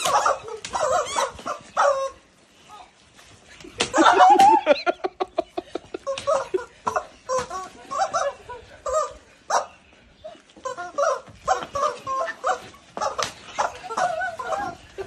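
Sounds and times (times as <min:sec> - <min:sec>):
rubber chicken toys squawking: 0:00.0 - 0:02.2, 0:06.0 - 0:09.7, 0:10.6 - 0:15.0
women laughing: 0:03.8 - 0:09.2.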